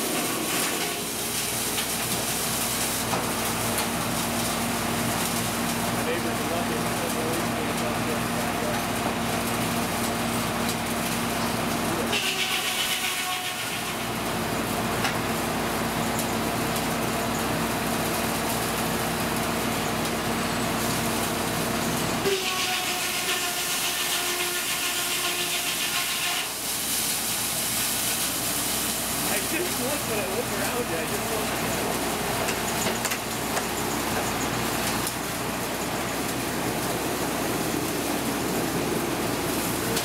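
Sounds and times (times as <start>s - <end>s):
sawmill machinery running: 0.0s - 40.0s
saw cutting a log: 11.9s - 14.3s, 22.2s - 26.6s.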